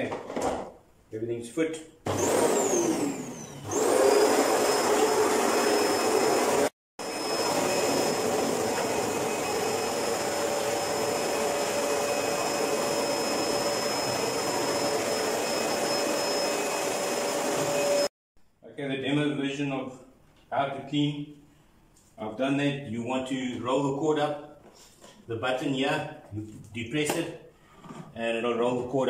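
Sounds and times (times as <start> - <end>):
vacuum cleaner motor whine: 2.1 - 18.1.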